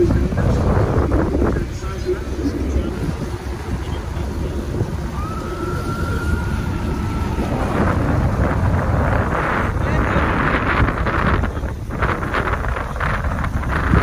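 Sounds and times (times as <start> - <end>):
steady low rumble: 0.0 - 14.0
wind buffeting microphone: 0.0 - 14.0.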